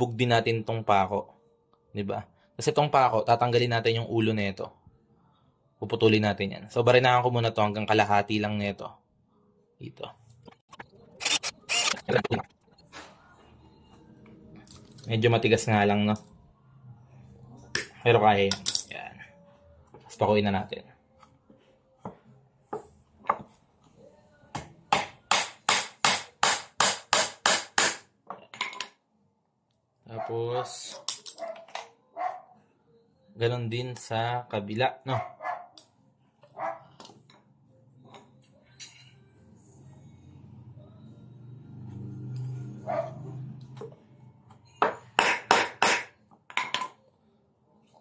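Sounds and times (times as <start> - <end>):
hammer striking nail into wood: 24.6 - 28.1, 45.2 - 46.1.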